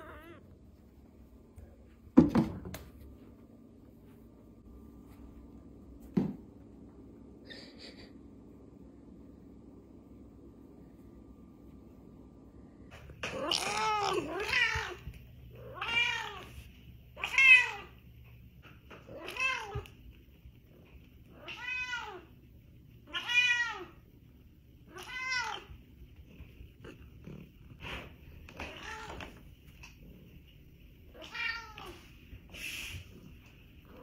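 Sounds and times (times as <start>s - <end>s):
cat meowing: 0.0s - 0.4s, 31.2s - 32.0s.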